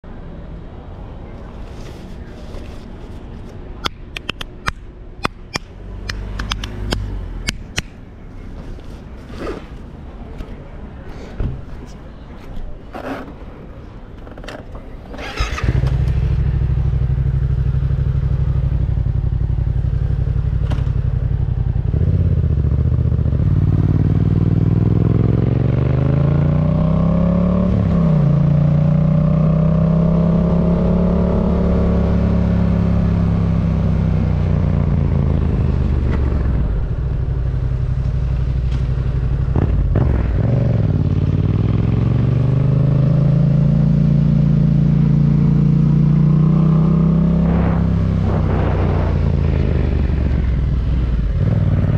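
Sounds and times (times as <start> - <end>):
motorcycle engine revving: 15.2 - 51.9.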